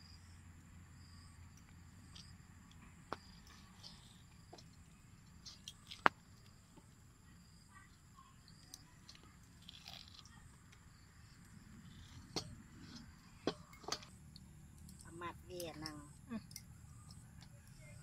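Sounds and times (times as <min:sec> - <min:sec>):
wet squelching and tearing: 0:09.6 - 0:10.3.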